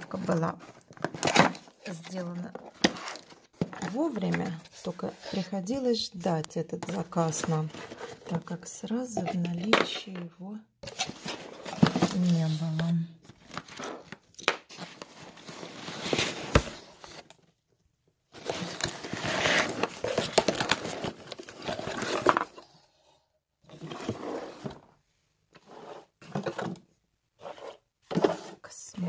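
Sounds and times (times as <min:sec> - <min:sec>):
cardboard box rustling: 0:14.8 - 0:17.3, 0:18.3 - 0:22.6.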